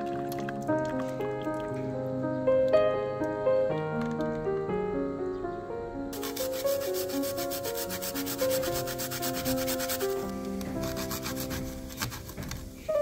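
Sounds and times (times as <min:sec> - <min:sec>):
background music: 0:00.0 - 0:13.0.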